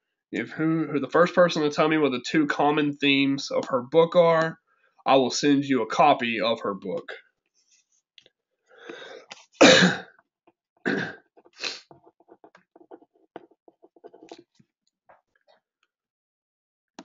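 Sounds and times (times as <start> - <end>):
person sneezing: 9.6 - 10.1.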